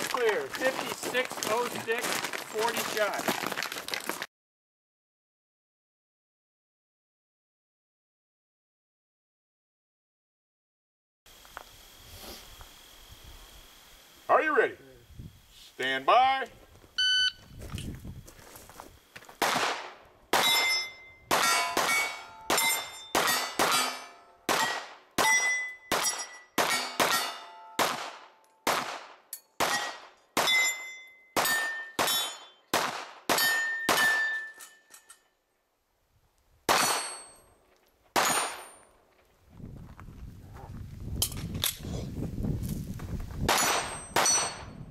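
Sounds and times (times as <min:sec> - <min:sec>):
shot timer beep: 0:17.0 - 0:17.4
handgun shots: 0:19.4 - 0:30.7, 0:31.4 - 0:34.5, 0:36.7 - 0:37.3, 0:38.2 - 0:38.8
steel target plates ringing: 0:20.4 - 0:27.8, 0:29.4 - 0:32.7, 0:33.3 - 0:35.3, 0:36.7 - 0:37.5, 0:43.5 - 0:44.8.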